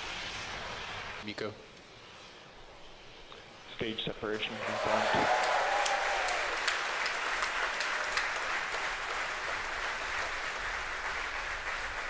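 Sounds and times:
crowd applauding and cheering: 4.4 - 12.0.

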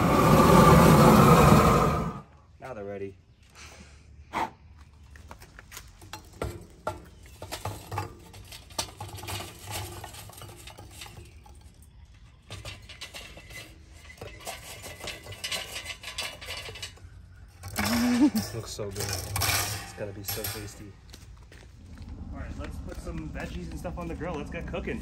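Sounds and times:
charcoal clattering into grill: 5.8 - 20.9.

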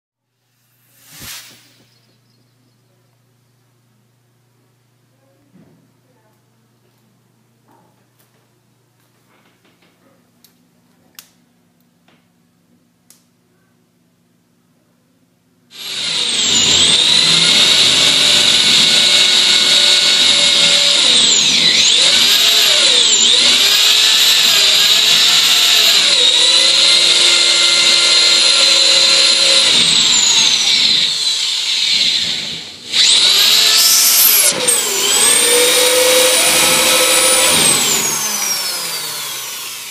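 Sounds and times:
electric drill motor whine: 0.5 - 2.2, 15.7 - 39.9.

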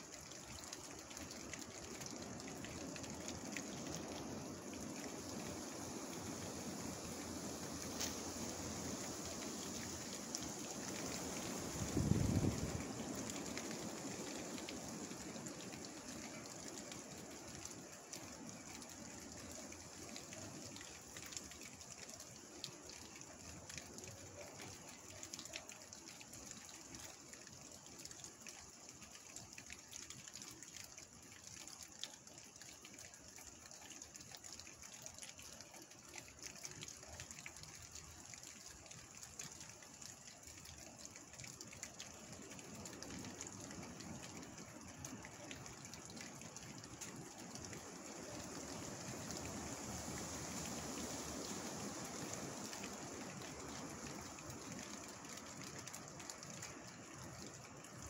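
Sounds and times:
rain falling through trees: 0.0 - 58.0
rush of wind: 5.2 - 15.0.

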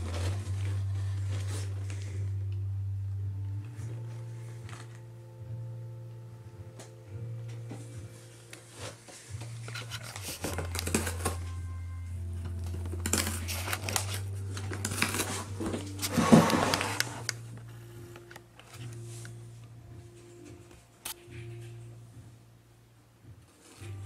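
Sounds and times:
packing paper crinkling: 0.0 - 2.1, 8.7 - 11.7, 12.4 - 19.3
cat tearing cardboard box: 9.7 - 11.4, 12.7 - 17.3.

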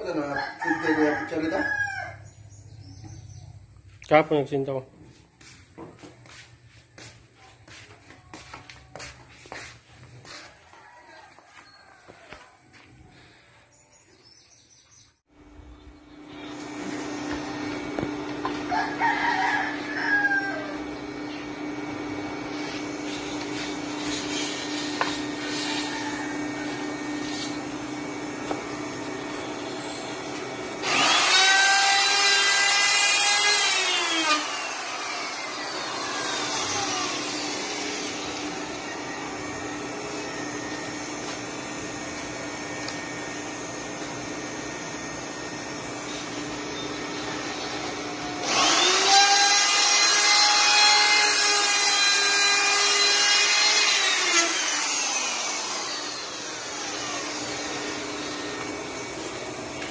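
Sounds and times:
rooster crowing: 0.0 - 2.4, 10.1 - 13.4, 18.5 - 21.0, 25.0 - 27.5, 38.2 - 41.0
power tool humming: 16.2 - 59.9.

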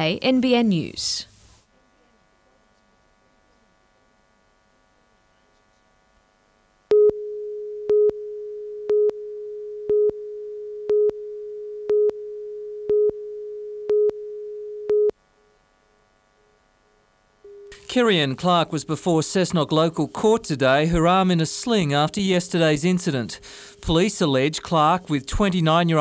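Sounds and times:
faint hum: 0.0 - 26.0
steady low electronic tone: 17.4 - 26.0.

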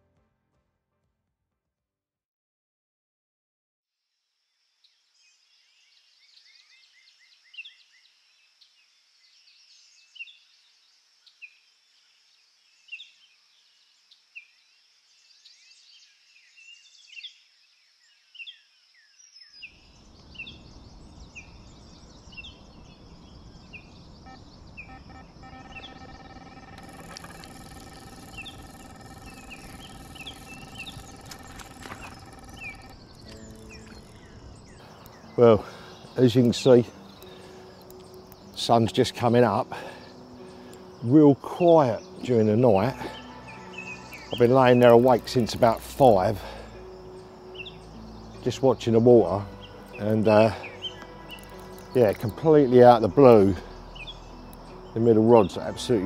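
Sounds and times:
birds chirping: 19.6 - 56.0
steady hum of even tones: 20.0 - 38.8.

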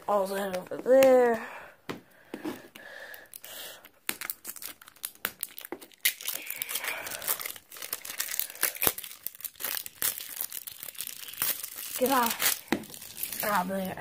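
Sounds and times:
plastic wrapping crinkling: 3.2 - 14.0.

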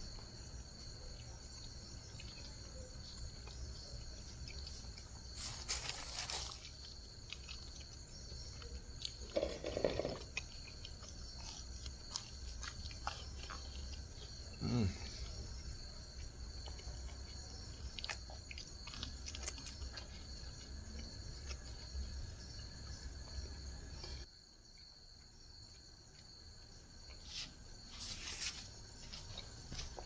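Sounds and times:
night insects trilling: 0.0 - 30.0
soft chewing: 0.1 - 24.3, 25.2 - 30.0
paper wrapping crinkling: 5.4 - 6.8.

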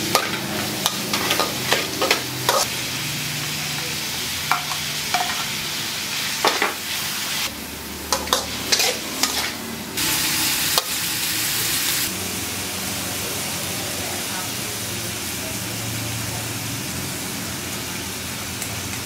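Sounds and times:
metal utensils clinking on pan: 0.0 - 2.7, 4.5 - 5.5, 8.1 - 9.6
vegetables sizzling in a wok: 0.0 - 19.0.

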